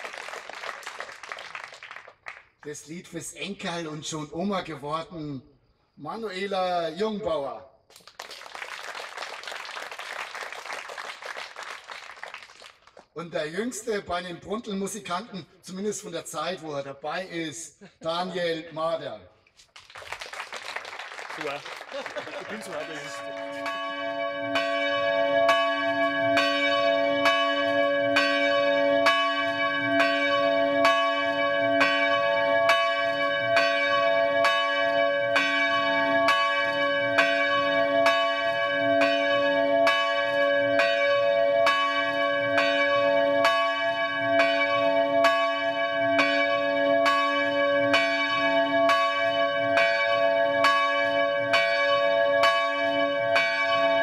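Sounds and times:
church bells ringing: 0:22.3 - 0:54.0.

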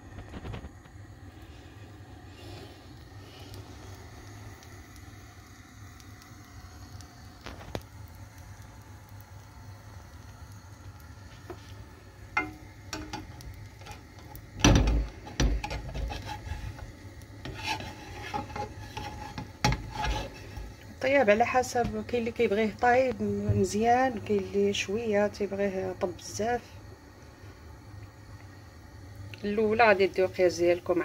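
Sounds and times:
steady low hum: 0:00.0 - 0:31.0
spatula knocking against a pan: 0:12.4 - 0:13.2
spatula scraping a frying pan: 0:12.4 - 0:14.3, 0:15.2 - 0:20.8.

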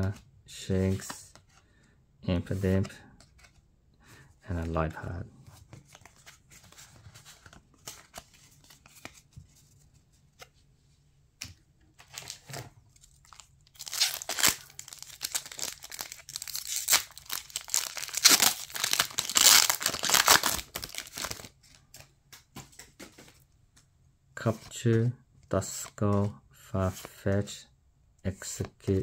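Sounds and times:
foil wrapper crinkling and tearing: 0:13.2 - 0:21.5.

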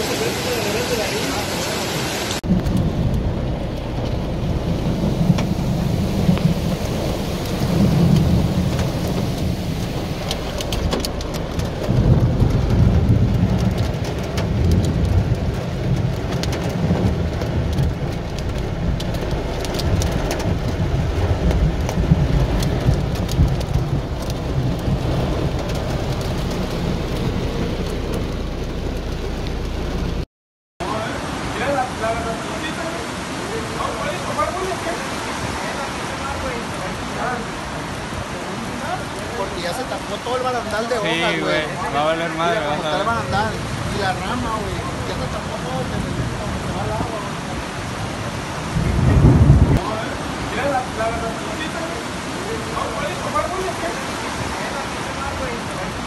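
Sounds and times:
floodwater surging around van: 0:00.0 - 0:30.2, 0:30.8 - 0:56.0
heavy rain on car roof: 0:00.0 - 0:30.2, 0:30.8 - 0:56.0
low rumble: 0:02.4 - 0:30.2, 0:48.7 - 0:49.8.

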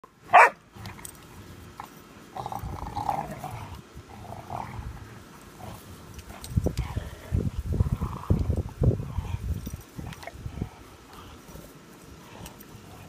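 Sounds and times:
dogs growling: 0:01.8 - 0:13.0.

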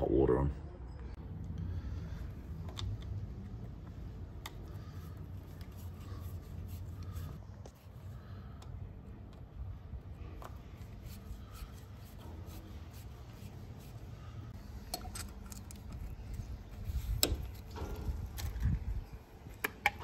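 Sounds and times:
metal tool clicks and scrapes: 0:14.8 - 0:18.8.

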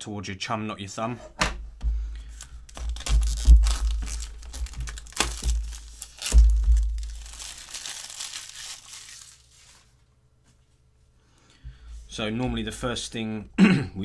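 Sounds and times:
plastic wrap crinkling and tearing: 0:02.3 - 0:10.0.

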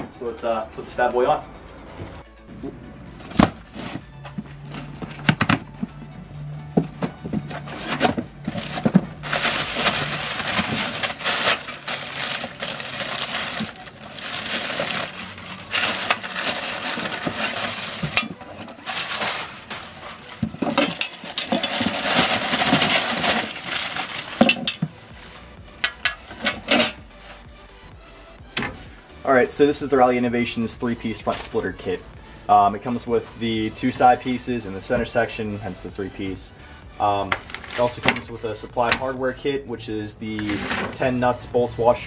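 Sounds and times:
packing paper rustling: 0:07.0 - 0:24.9, 0:37.2 - 0:38.3, 0:40.4 - 0:41.1.

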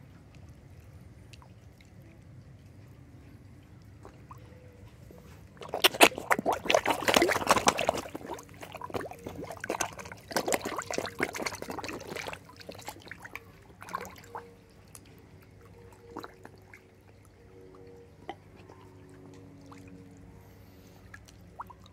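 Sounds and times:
fish splashing at water surface: 0:05.1 - 0:21.9.

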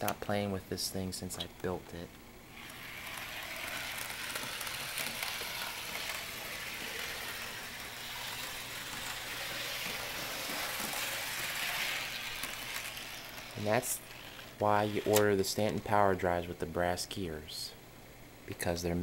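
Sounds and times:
model train motor whirring: 0:02.5 - 0:16.0
wheels on track: 0:02.6 - 0:15.2.

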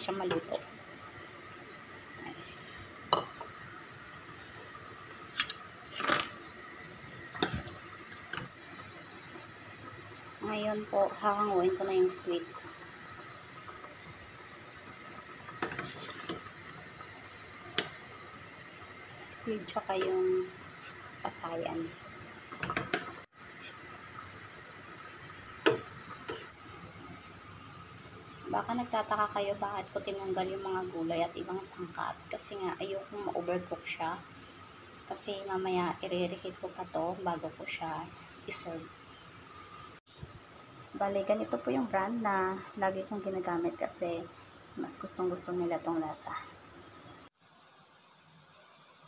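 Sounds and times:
ladle scraping pot: 0:15.5 - 0:16.5, 0:25.7 - 0:26.6.

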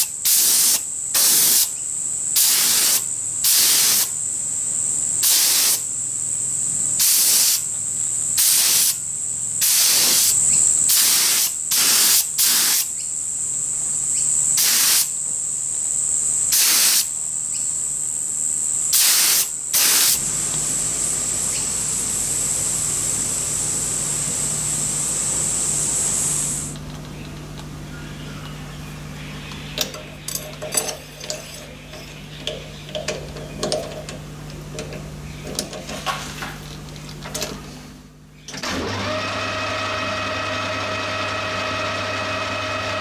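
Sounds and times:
spray gun hissing bursts: 0:00.0 - 0:01.7, 0:02.4 - 0:04.2, 0:05.2 - 0:05.9, 0:07.0 - 0:07.7, 0:08.4 - 0:09.0, 0:09.6 - 0:13.0, 0:14.5 - 0:15.2, 0:16.5 - 0:17.1, 0:18.9 - 0:26.8
high-pitched whine: 0:15.9 - 0:32.9.

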